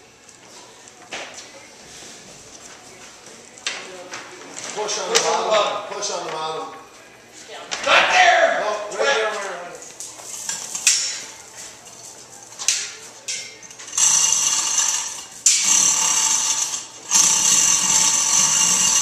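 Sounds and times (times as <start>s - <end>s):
chain hoist running: 13.7s - 19.0s.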